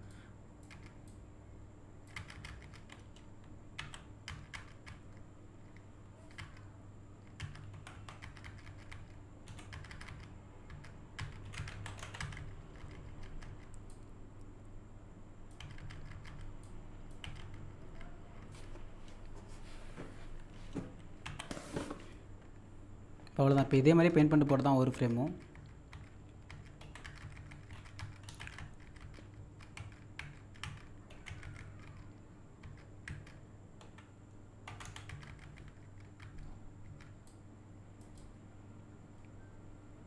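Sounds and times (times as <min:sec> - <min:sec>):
faint electrical hum: 0:00.0 - 0:40.0
keyboard keys clicking: 0:02.1 - 0:05.2, 0:06.3 - 0:14.0, 0:15.5 - 0:18.6, 0:25.2 - 0:34.1, 0:34.7 - 0:37.4.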